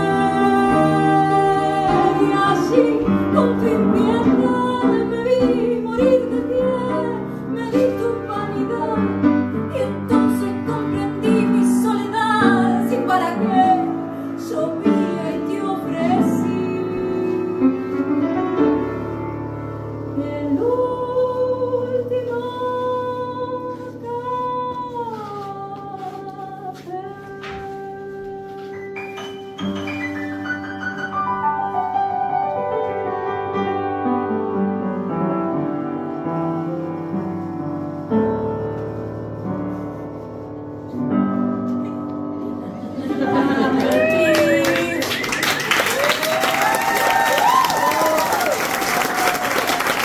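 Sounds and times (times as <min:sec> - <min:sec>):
woman singing a tango: 0:00.0 - 0:30.2, 0:43.6 - 0:46.1
instrumental accompaniment: 0:00.0 - 0:46.3.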